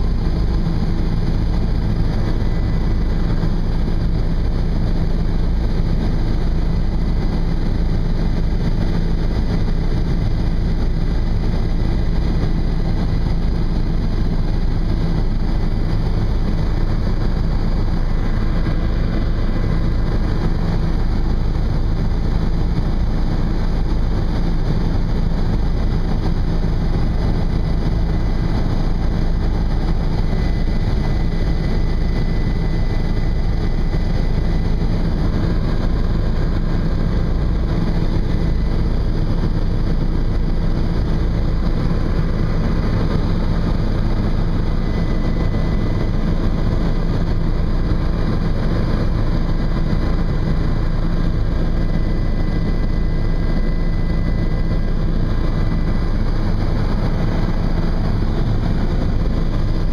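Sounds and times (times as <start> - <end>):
helicopter engine and rotor drone: 0.0 - 59.9.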